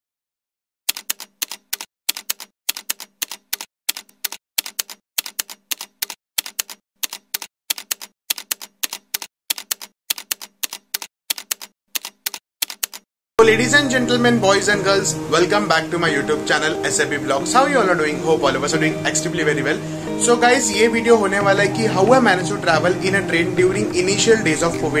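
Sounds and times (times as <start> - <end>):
typewriter key clicks: 0.9 - 13.0.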